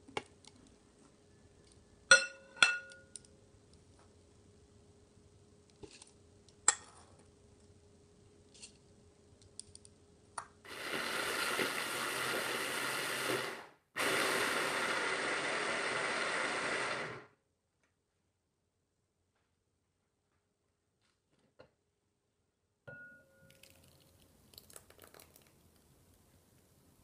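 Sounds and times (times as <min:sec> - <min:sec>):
hand blender motor running: 0:10.7 - 0:17.3.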